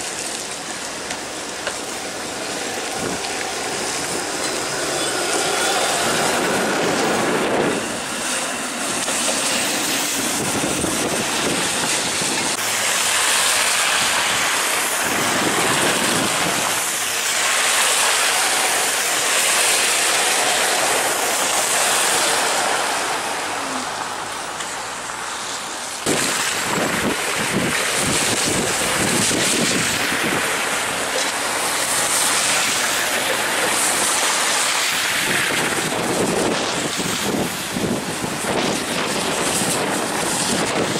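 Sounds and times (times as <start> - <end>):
road traffic passing: 0.0 - 40.9
streetcar rolling past: 0.0 - 40.9
wind on microphone: 2.7 - 12.7, 13.8 - 17.0, 26.0 - 30.8, 34.9 - 40.9.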